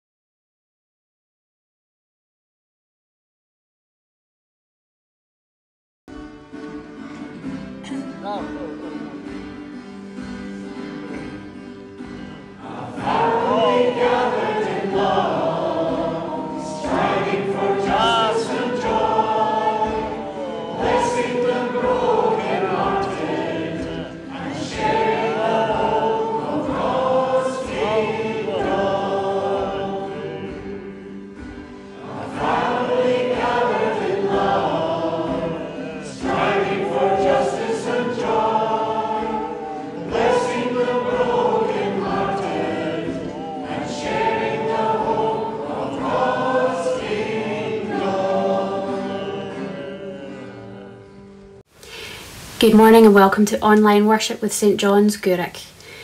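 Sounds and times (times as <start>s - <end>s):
instrumental accompaniment: 6.1s - 50.2s
choir singing: 6.5s - 51.6s.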